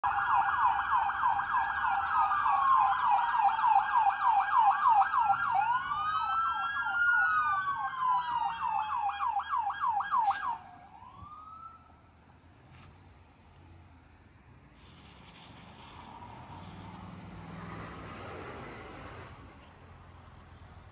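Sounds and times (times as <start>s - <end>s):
siren rising whoop: 0.0s - 11.9s
siren wailing: 0.0s - 11.9s
siren yelping: 0.0s - 11.9s.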